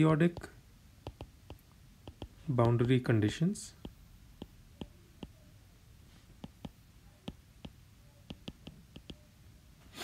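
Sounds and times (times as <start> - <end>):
stylus tapping on glass screen: 0.3 - 3.0, 3.8 - 5.4, 6.4 - 9.3.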